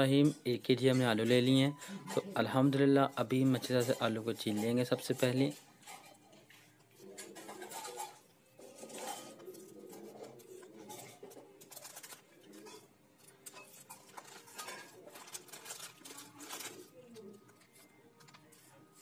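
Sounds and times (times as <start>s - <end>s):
birds cooing: 7.0s - 11.6s.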